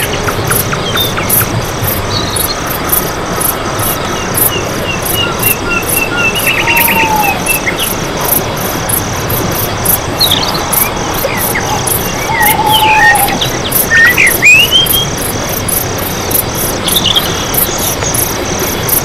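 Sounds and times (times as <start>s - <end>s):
insects chirping: 0.0s - 19.0s
birds calling: 3.9s - 15.5s.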